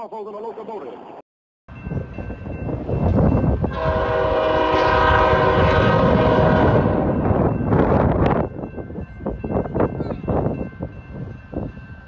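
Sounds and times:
locomotive air horn chord: 3.6s - 7.3s.

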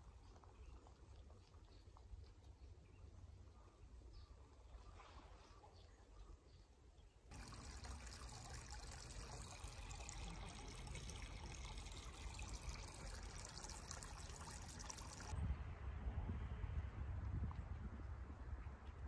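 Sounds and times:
stream trickling: 7.3s - 15.4s.

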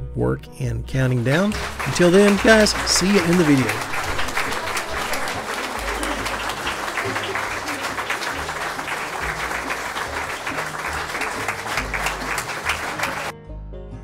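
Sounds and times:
background music with bass: 0.0s - 5.1s, 9.2s - 14.0s
crowd applauding: 1.1s - 13.3s.

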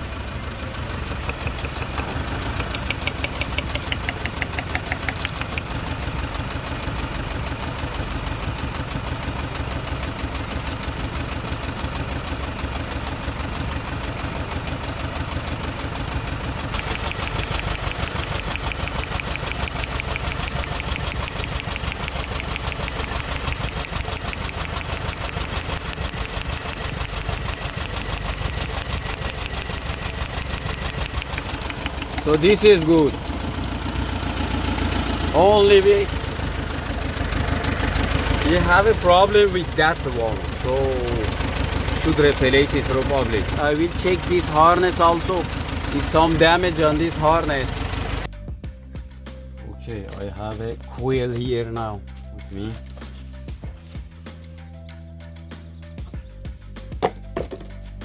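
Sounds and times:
petrol engine idling: 0.0s - 48.4s.

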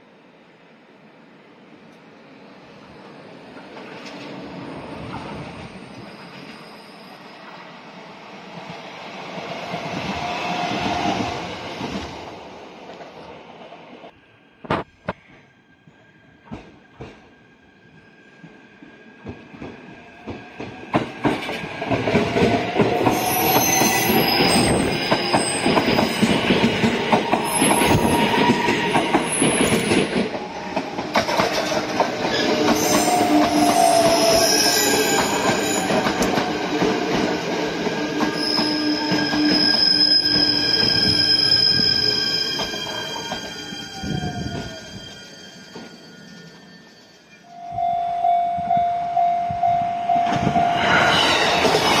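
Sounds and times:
train wheels clattering on rails: 14.7s - 17.3s, 19.2s - 43.5s
high squealing tones: 38.3s - 48.2s.

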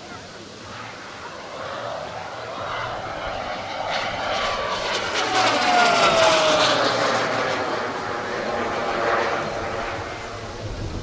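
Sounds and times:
model plane turboprop flying by: 0.0s - 11.0s.

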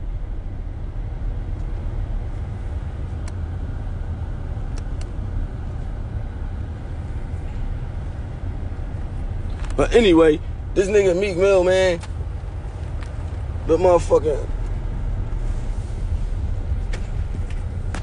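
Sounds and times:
low rumble: 0.0s - 18.0s.

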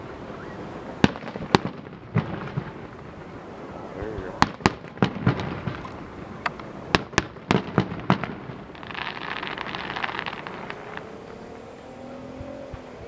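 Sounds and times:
fireworks crackling: 0.0s - 13.0s
fireworks shells bursting: 4.1s - 11.1s.

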